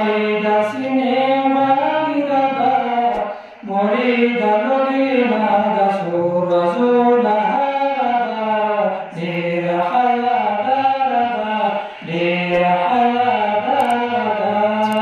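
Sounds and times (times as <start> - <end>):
man chanting: 0.0 - 15.0
man breathing in: 3.2 - 3.7, 11.8 - 12.1.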